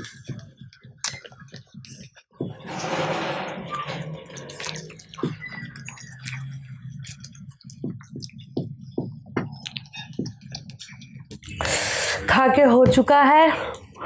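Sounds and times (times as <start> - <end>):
wet chewing mouth clicks: 0.0 - 2.2, 4.7 - 11.6.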